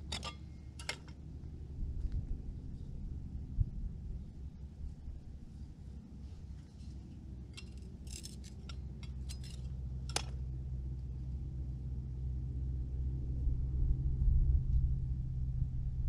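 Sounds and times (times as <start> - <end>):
low rumble: 0.0 - 6.5, 7.1 - 16.0
rock fragments clinking and scraping: 7.6 - 10.3.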